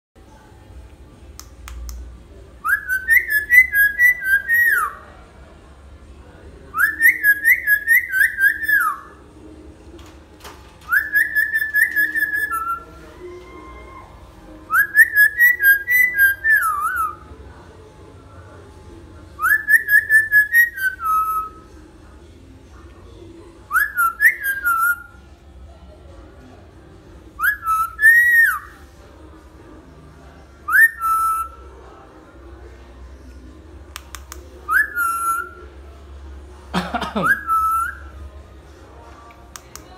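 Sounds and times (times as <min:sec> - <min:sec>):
lory whistling: 0:02.6 - 0:05.0, 0:06.8 - 0:09.2, 0:10.9 - 0:14.1, 0:14.7 - 0:17.2, 0:19.4 - 0:21.6, 0:23.7 - 0:25.2, 0:27.4 - 0:28.8, 0:30.7 - 0:31.7, 0:34.7 - 0:35.6.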